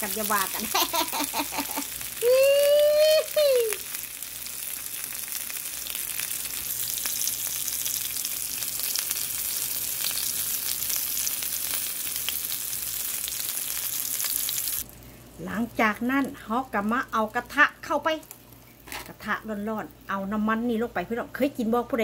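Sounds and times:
meat sizzling in a pan: 0.0s - 14.9s.

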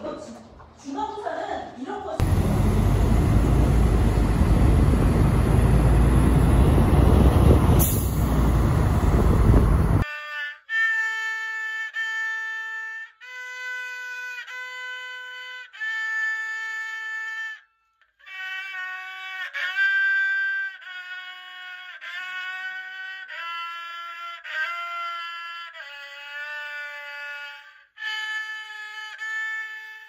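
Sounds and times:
street traffic rumble: 2.2s - 10.0s
bowed fiddle long notes: 2.2s - 16.0s.

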